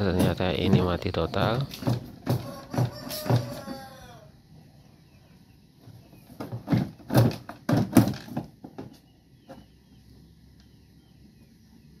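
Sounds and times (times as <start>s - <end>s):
sharp knocks and clatters on plastic: 1.7s - 3.6s, 6.2s - 9.6s.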